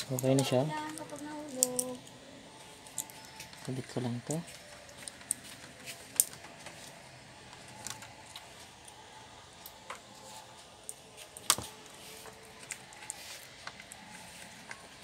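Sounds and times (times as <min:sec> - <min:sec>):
plastic laptop parts clicking: 0:07.5 - 0:09.0.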